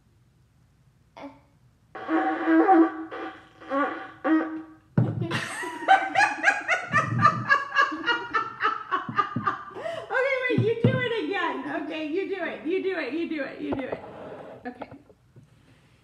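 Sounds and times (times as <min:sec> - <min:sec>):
shofar horn blown: 0:02.0 - 0:04.9
people laughing: 0:05.3 - 0:10.1
woman speaking: 0:10.0 - 0:14.0, 0:14.7 - 0:15.0.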